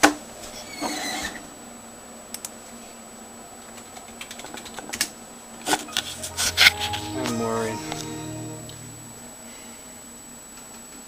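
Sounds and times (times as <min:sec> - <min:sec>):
faint computer hum: 0:01.8 - 0:10.1.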